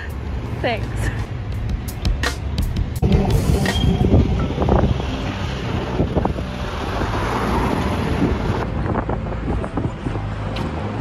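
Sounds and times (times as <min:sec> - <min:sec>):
city street traffic: 0:00.0 - 0:11.0
wind buffeting microphone: 0:03.0 - 0:11.0.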